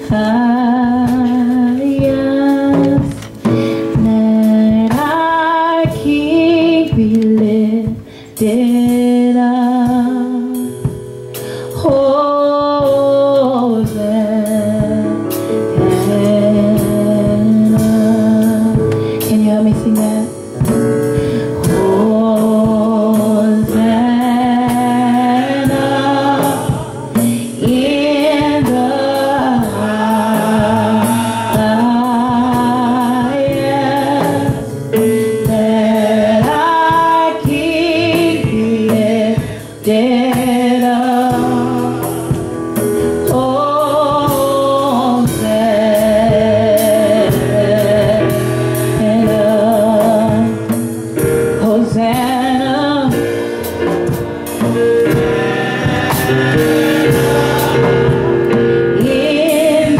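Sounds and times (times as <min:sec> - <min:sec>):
woman singing gospel: 0:00.0 - 0:11.0, 0:11.6 - 0:50.8, 0:51.5 - 0:59.9
instrumental chords and beat: 0:53.1 - 0:59.8.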